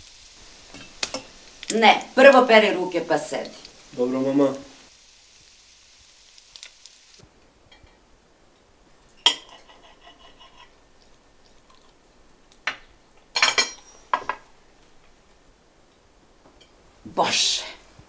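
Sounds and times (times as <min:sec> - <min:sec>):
cutlery clinking on plate: 0:09.1 - 0:10.7, 0:13.4 - 0:14.4.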